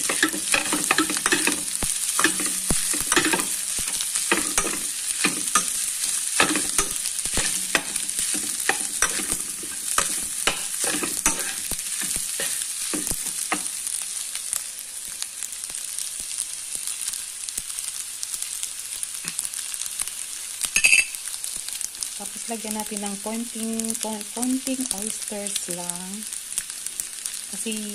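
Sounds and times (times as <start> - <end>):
metal spatula scraping a pan: 0.0 - 13.7
spatula clacking against pan: 0.0 - 13.7
rice sizzling in a frying pan: 0.0 - 27.9.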